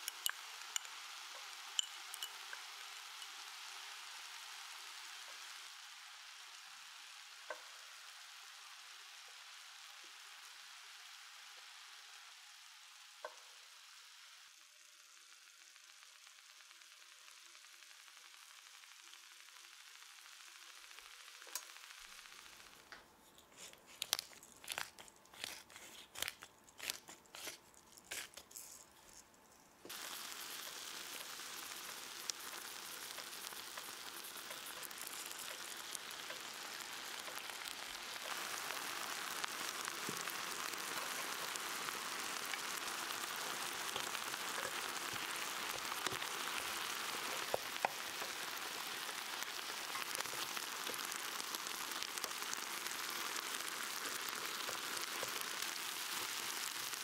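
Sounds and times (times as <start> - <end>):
meat sizzling loudly: 0.0 - 22.9, 23.6 - 28.5, 29.8 - 57.0
meat popping and spitting: 23.4 - 29.0, 29.8 - 57.0.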